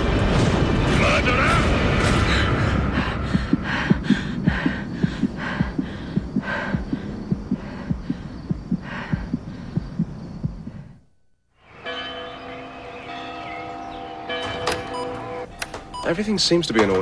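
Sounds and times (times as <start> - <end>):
heartbeat thumps: 1.9 - 11.1.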